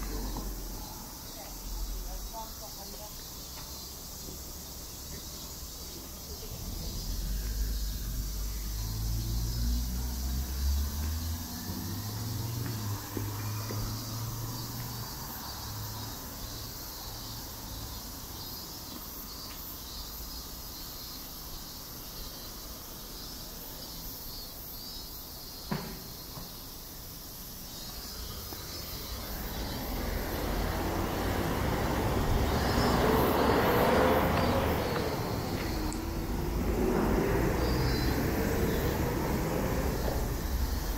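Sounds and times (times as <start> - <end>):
vehicle engine: 0.0 - 2.4, 4.4 - 16.8, 28.1 - 40.9
street traffic noise: 0.0 - 40.9
low engine hum: 4.7 - 15.2, 28.2 - 40.9.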